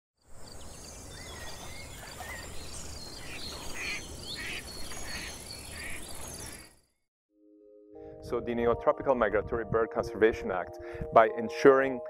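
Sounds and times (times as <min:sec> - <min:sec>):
birds chirping and whistling: 0:00.4 - 0:06.8.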